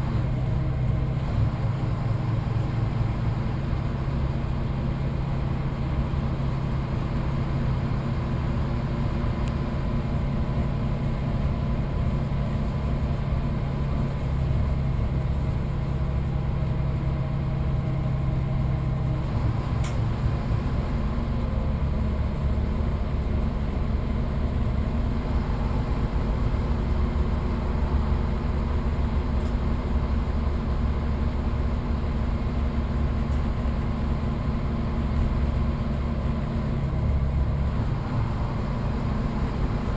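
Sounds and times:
bus diesel engine running: 0.0s - 39.9s
road and body noise: 12.1s - 39.9s.

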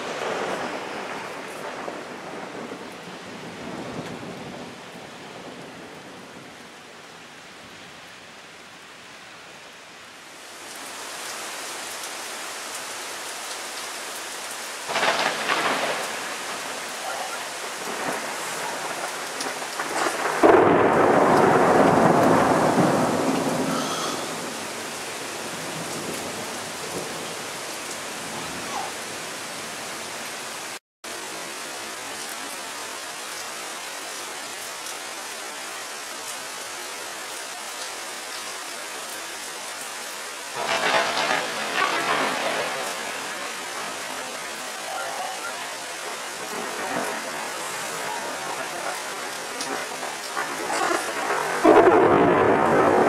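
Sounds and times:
rolling thunder: 0.0s - 6.6s, 14.8s - 27.4s, 40.6s - 44.4s, 46.0s - 53.0s
rain hissing: 0.0s - 53.0s
thunder crack: 14.9s - 16.8s, 17.6s - 24.8s, 40.6s - 44.0s, 46.5s - 53.0s.

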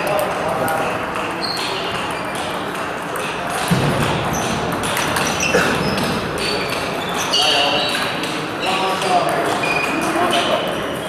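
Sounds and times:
sports hall hubbub: 0.0s - 11.0s
table tennis balls clicking: 0.0s - 11.0s
thud: 3.7s - 4.3s.

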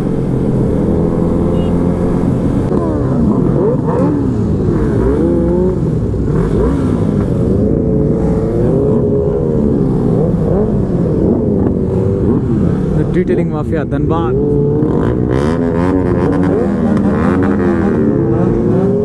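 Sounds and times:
motorcycle engines revving: 0.0s - 19.0s.

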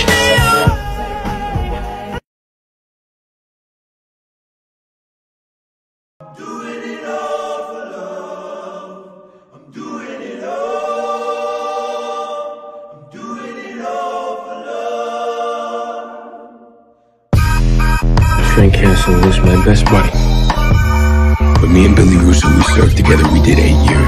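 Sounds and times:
choir singing held notes: 6.2s - 16.9s.

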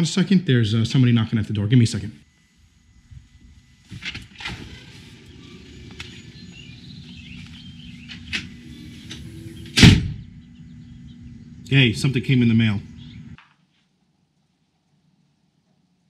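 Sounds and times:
outdoor background noise: 0.0s - 16.0s
loud thump: 8.4s - 10.4s.

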